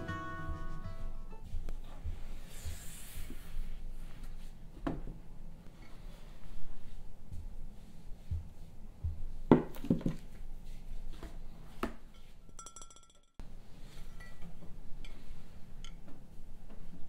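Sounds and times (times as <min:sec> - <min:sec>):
glass container knocking and clinking: 0:12.5 - 0:13.4.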